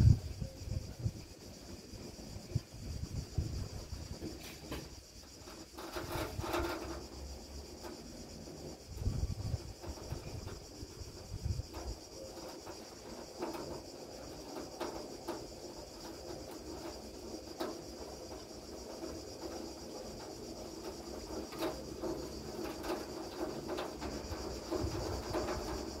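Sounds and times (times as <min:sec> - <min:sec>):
insects chirring: 0:00.0 - 0:26.0.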